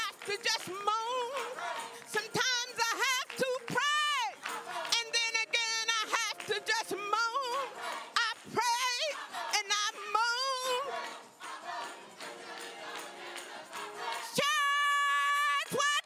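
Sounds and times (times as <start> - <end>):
gospel choir singing: 0.0 - 15.8.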